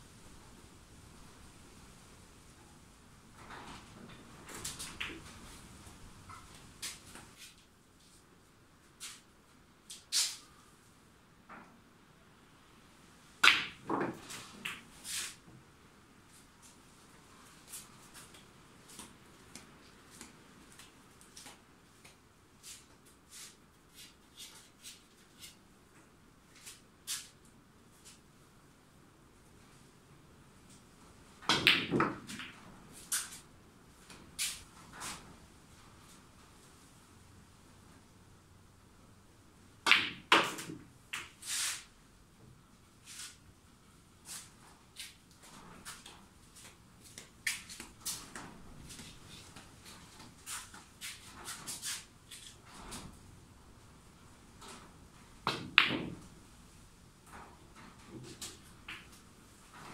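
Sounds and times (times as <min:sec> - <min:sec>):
cue striking ball: 0:13.4 - 0:14.1, 0:31.5 - 0:32.5, 0:39.8 - 0:40.7.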